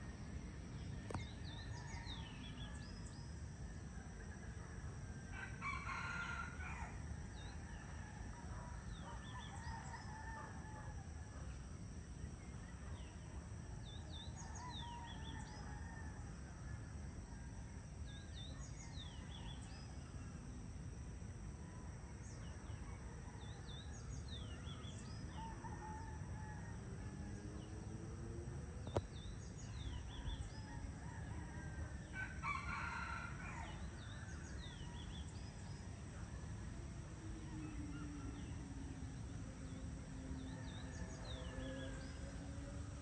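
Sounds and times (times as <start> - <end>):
rooster crowing: 5.3 - 7.0, 29.7 - 35.4, 36.6 - 43.0
long low gliding calls: 34.6 - 43.0.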